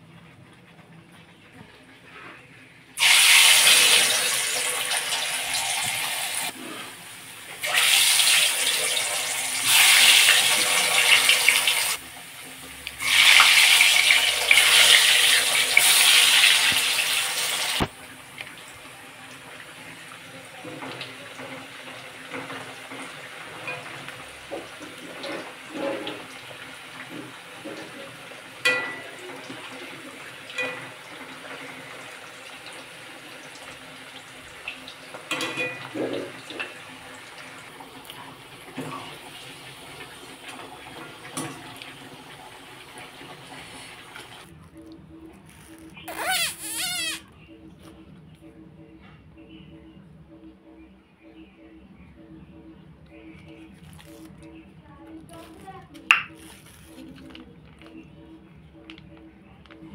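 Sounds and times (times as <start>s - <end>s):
potato slices sizzling in oil: 3.0s - 12.0s, 12.8s - 17.9s.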